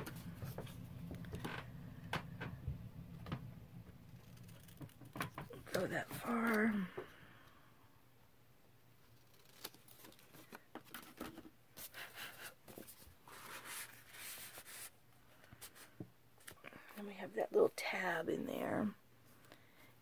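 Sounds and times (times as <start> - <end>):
card rustling and scraping: 4.0 - 6.7, 9.1 - 16.6.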